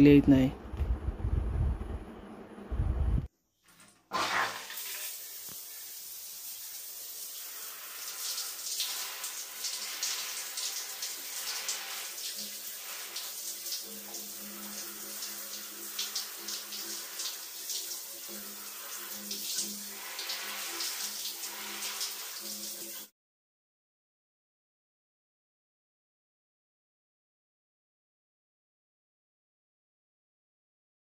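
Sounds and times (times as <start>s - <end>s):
shower water splashing on phone: 3.6s - 23.1s.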